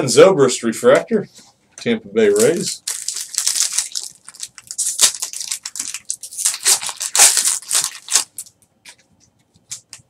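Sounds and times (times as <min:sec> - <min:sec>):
foil wrapper crinkling: 0:02.3 - 0:09.0.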